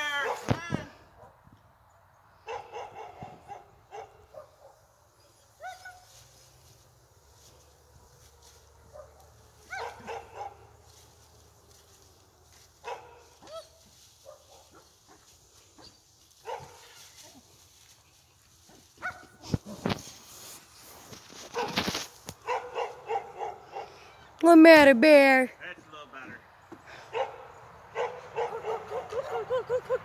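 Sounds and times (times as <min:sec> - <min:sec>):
dog barking and yipping: 0:02.5 - 0:04.8, 0:05.6 - 0:06.2, 0:08.8 - 0:10.7, 0:12.8 - 0:17.4, 0:18.7 - 0:19.4, 0:21.5 - 0:24.1, 0:27.1 - 0:29.6.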